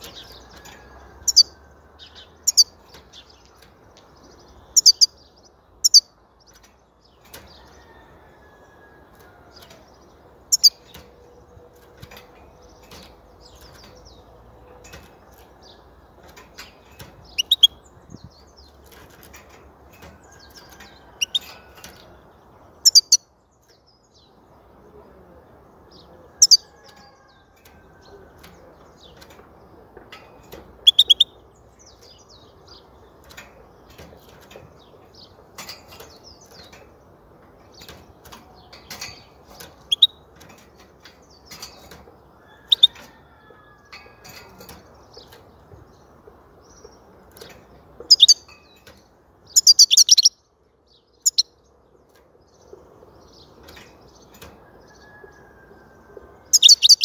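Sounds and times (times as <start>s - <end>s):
faint background noise: 0.0s - 57.0s
bird giving high chirps: 4.6s - 5.2s, 17.3s - 17.9s, 22.8s - 23.3s, 30.8s - 31.4s, 48.1s - 48.5s, 49.5s - 50.4s, 51.2s - 51.5s, 56.5s - 57.0s.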